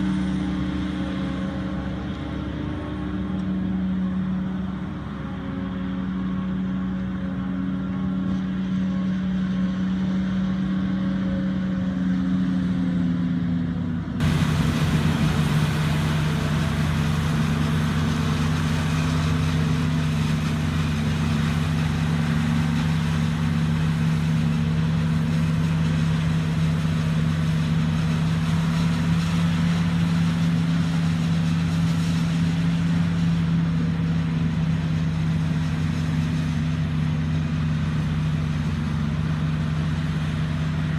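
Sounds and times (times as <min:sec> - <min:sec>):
forage harvester engine drone: 0:00.0 - 0:40.9.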